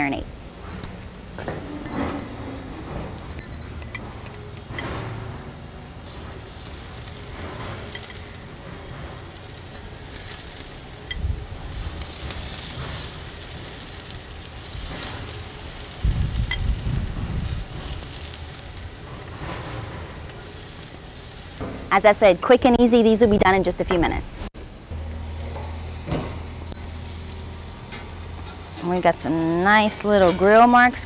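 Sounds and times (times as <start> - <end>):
marinade sizzling on a grill: 4.0 - 23.2, 24.8 - 31.0
low rumbling bumps: 14.8 - 31.0.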